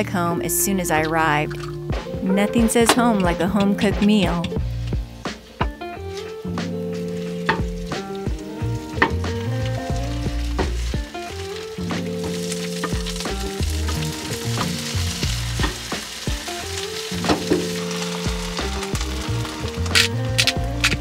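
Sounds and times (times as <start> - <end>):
background music: 0.0 - 21.0
vegetables sizzling in a frying pan: 4.6 - 21.0.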